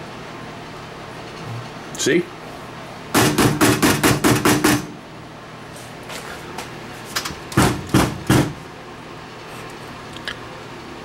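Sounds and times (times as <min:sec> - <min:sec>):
hand knocking on sheet metal: 0:03.2 - 0:04.9, 0:07.5 - 0:08.6.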